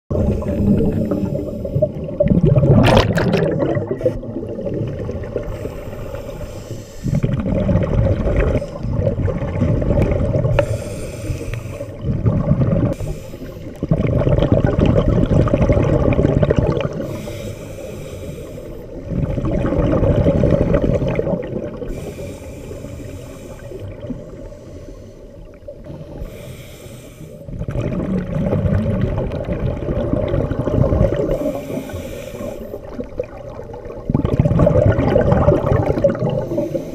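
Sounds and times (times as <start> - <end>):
exhaust bubbling underwater: 0.1 - 6.3, 7.1 - 10.8, 11.9 - 13.0, 13.6 - 17.3, 18.7 - 22.2, 27.4 - 36.9
regulator inhale hiss: 5.5 - 7.3, 10.5 - 12.0, 12.9 - 13.8, 17.0 - 19.1, 21.9 - 27.5, 31.3 - 32.9, 36.4 - 36.9.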